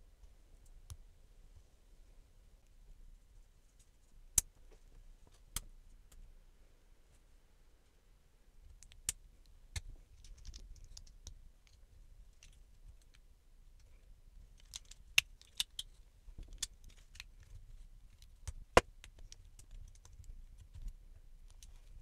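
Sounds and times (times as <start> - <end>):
plastic bricks clicking together: 14.6 - 15.9.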